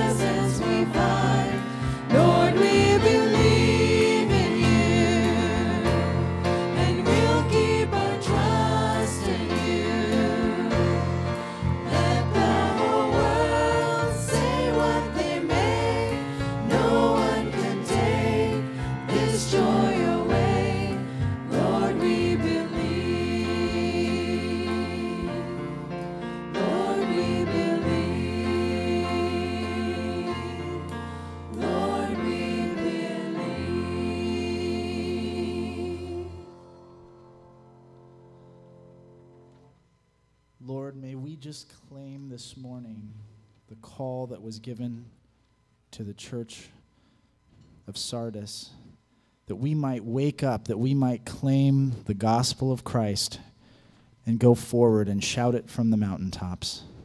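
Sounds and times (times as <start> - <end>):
singers in harmony: 0.0 - 38.2.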